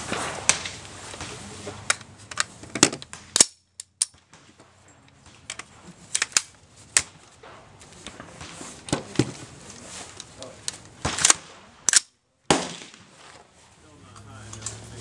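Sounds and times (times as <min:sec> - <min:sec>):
gunshots: 0:00.0 - 0:01.9, 0:07.0 - 0:09.4, 0:11.0 - 0:13.4.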